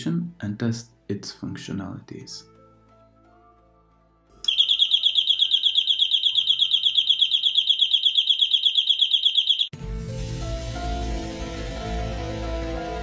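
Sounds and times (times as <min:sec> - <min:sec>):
pulsing high-pitched electronic alarm: 0:04.5 - 0:09.7.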